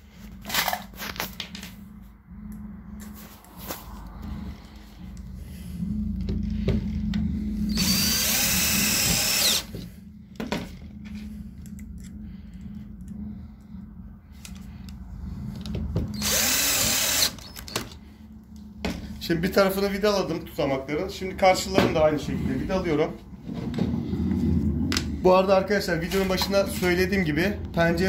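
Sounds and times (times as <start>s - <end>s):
cordless drill driving screws: 7.7s - 9.7s, 16.1s - 17.7s.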